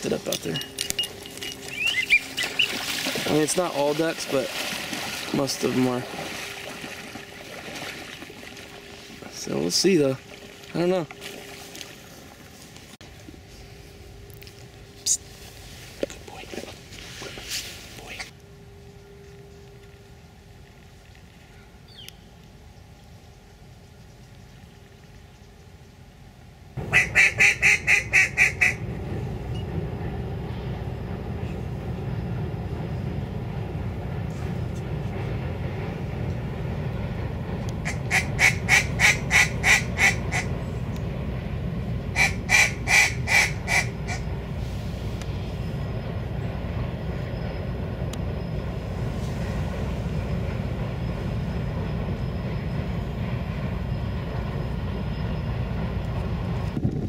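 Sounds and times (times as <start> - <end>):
duck call quacks: 26.8 - 28.8, 37.8 - 40.5, 42.2 - 44.2.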